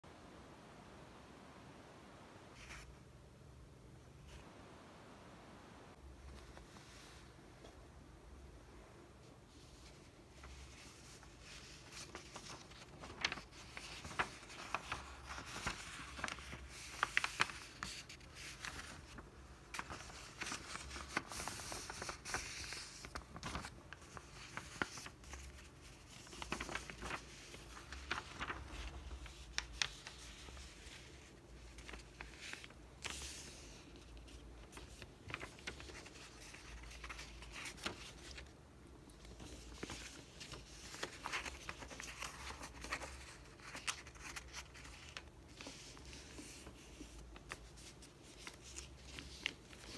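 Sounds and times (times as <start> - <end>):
paper rustling and creasing: 2.5 - 3.1, 9.3 - 49.9
sharp paper crinkles: 10.3 - 49.9.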